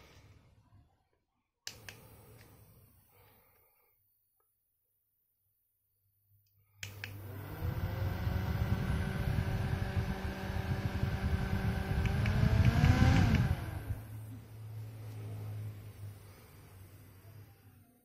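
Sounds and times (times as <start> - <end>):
small fan motor whirring: 7.0 - 14.2
air gusting on microphone: 7.3 - 17.1.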